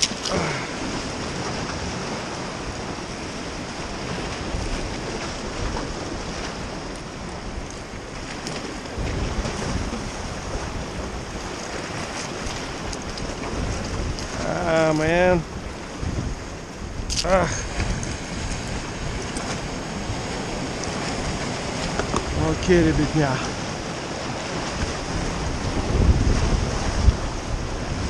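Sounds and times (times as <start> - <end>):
waves splashing against rocks: 0.0 - 28.0
wind buffeting microphone: 0.0 - 28.0.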